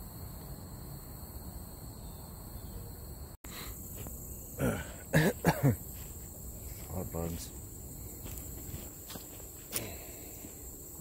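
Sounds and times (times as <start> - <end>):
person coughing: 4.6 - 5.8.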